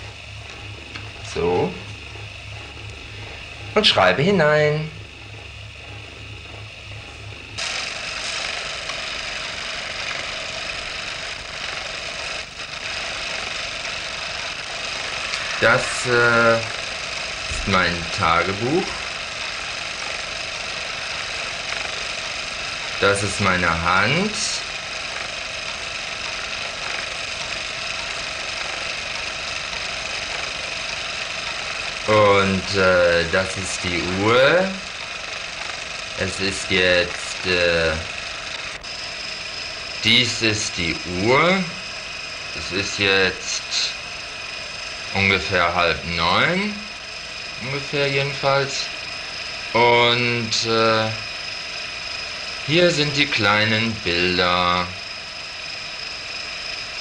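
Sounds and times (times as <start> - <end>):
faint low hum: 0.0 - 56.2
small motor whirring: 5.0 - 57.0.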